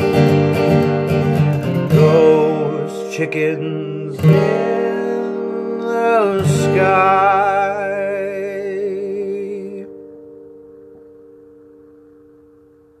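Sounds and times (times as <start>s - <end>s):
acoustic guitar chord: 0.0s - 13.0s
man singing with vibrato: 1.8s - 10.2s.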